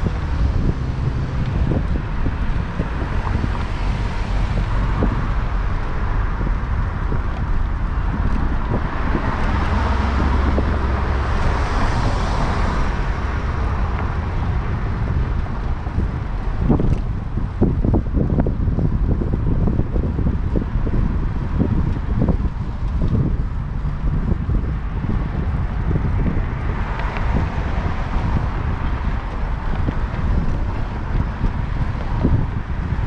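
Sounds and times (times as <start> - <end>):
vehicle passing close: 0.0 - 18.0
city street traffic: 0.0 - 33.0
wind rumbling on microphone: 0.0 - 33.0.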